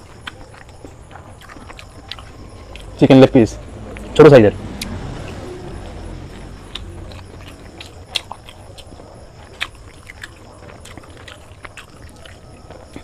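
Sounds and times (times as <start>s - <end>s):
wet chewing smacks: 0.0s - 3.0s, 6.7s - 13.0s.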